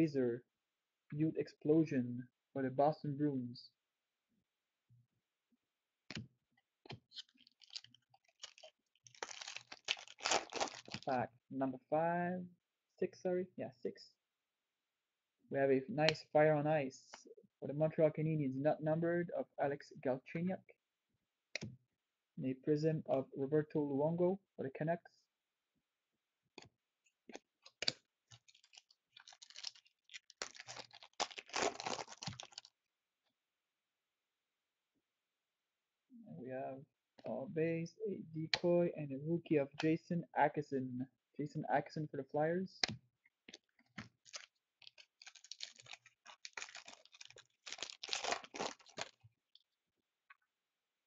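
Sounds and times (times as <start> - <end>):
wrapper crackling rustle: 7.2 - 11.1, 28.3 - 32.7, 44.0 - 49.2.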